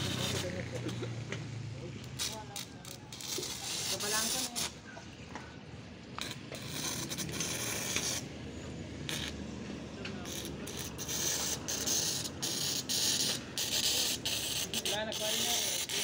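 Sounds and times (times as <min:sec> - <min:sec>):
arc welding crackling hiss: 0:00.0 - 0:00.8, 0:02.0 - 0:04.8, 0:06.2 - 0:08.3, 0:09.1 - 0:09.4, 0:10.2 - 0:16.0.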